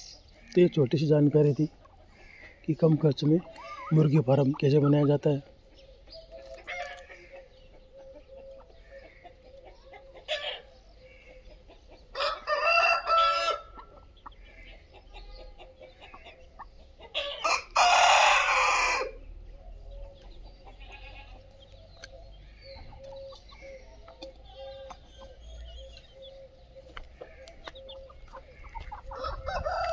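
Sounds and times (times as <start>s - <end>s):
chickens clucking: 0.0s - 29.9s
rooster crowing: 12.1s - 13.8s, 17.2s - 19.2s, 29.1s - 29.9s.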